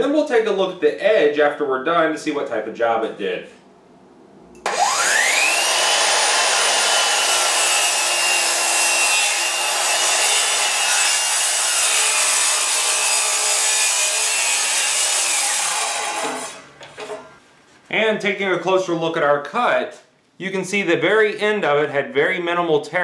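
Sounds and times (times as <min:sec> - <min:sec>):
saw blade winding down: 0:04.6 - 0:16.6
miter saw whining: 0:04.6 - 0:16.7.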